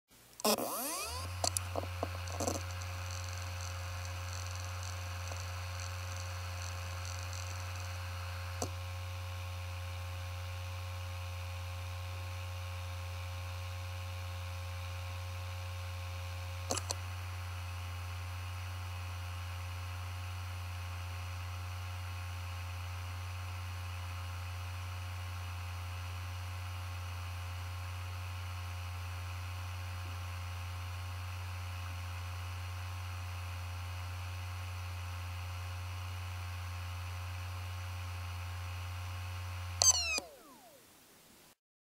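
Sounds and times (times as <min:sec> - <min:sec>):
hard drive clicks: 0:00.4 - 0:08.8, 0:16.7 - 0:17.0, 0:39.8 - 0:40.8
hard drive spinning hum: 0:00.4 - 0:12.0, 0:39.3 - 0:41.4.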